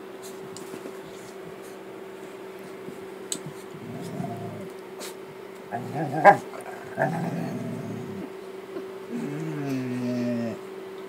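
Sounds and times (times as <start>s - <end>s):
dogs play-growling and snarling: 3.4s - 4.8s, 5.7s - 8.3s, 9.1s - 10.6s.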